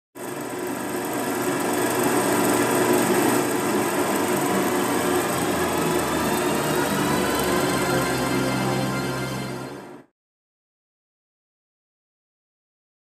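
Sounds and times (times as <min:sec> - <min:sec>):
film rattling through projector: 0:00.2 - 0:07.8
film projector motor whirring: 0:00.2 - 0:10.0.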